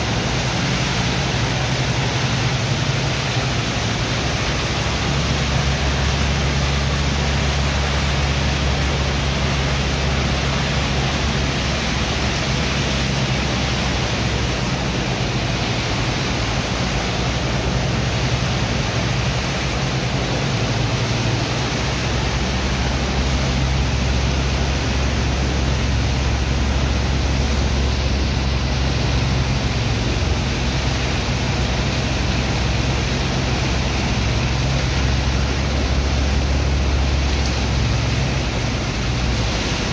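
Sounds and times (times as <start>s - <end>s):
low machinery hum: 0.0s - 39.9s
water jets blasting into wet sand: 0.0s - 39.9s.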